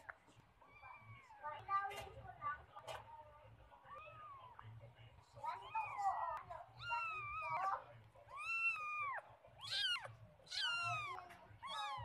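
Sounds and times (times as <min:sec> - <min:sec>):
cat meowing: 0:05.5 - 0:12.0.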